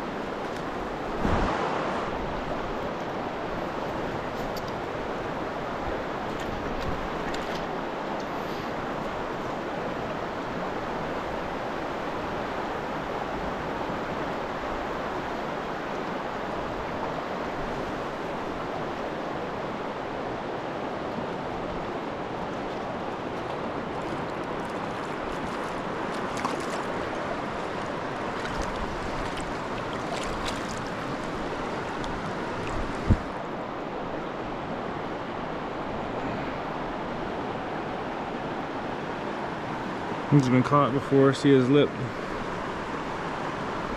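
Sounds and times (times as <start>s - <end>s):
rocky river rushing: 0.0s - 43.9s
sharp thump: 1.2s - 2.1s.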